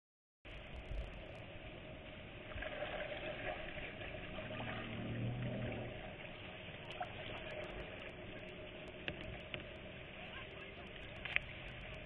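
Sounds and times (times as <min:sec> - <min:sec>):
faint low hum: 0:00.5 - 0:12.0
waves lapping against kayak: 0:00.5 - 0:12.0.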